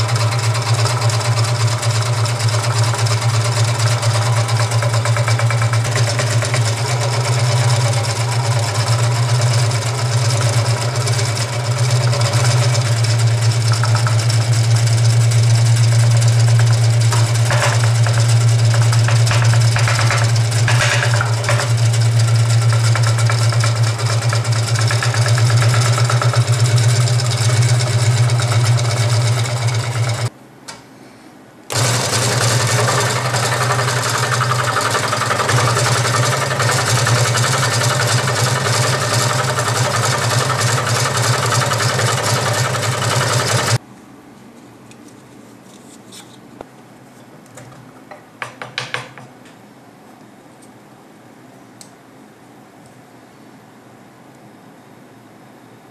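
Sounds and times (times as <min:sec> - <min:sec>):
scroll saw cutting wood: 0:00.0 - 0:30.3, 0:31.7 - 0:43.8.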